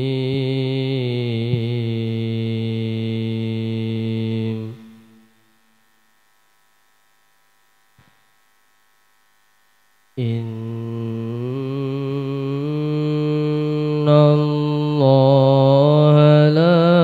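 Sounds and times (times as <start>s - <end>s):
melodic recitation into a microphone: 0.0s - 5.4s, 10.2s - 17.0s
faint mains hum: 0.0s - 17.0s
small click: 8.0s - 8.2s.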